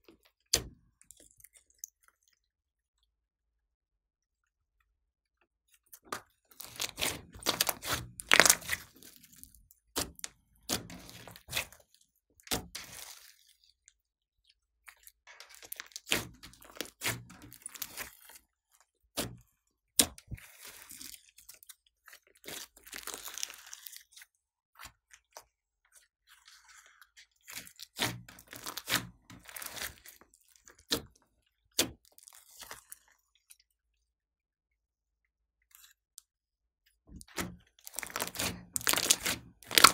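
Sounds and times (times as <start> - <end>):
slime crackling and popping: 6.5 - 9.2, 15.4 - 18.2, 22.5 - 24.1, 27.6 - 30.2, 37.8 - 39.9.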